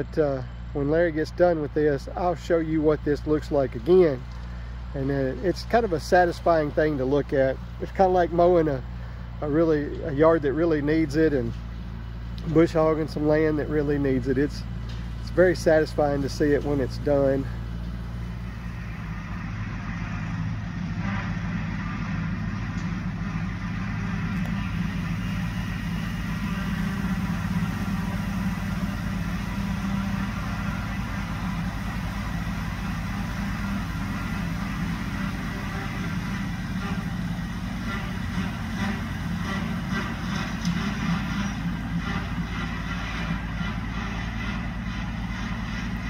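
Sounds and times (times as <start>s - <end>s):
tractor engines running: 0.0s - 46.0s.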